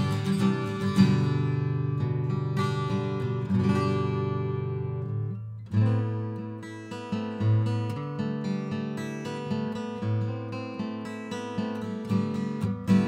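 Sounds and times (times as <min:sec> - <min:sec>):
acoustic guitar chords: 0:00.0 - 0:13.0.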